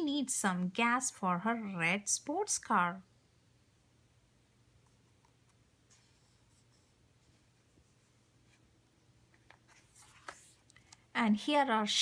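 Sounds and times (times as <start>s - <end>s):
book page turning: 9.3s - 11.0s.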